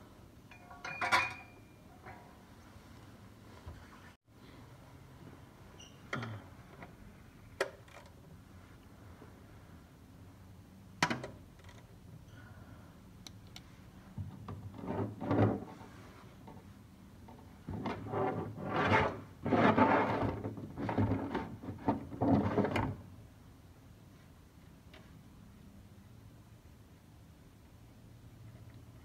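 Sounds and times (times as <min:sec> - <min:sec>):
plastic pan scraping: 0:17.7 - 0:22.8.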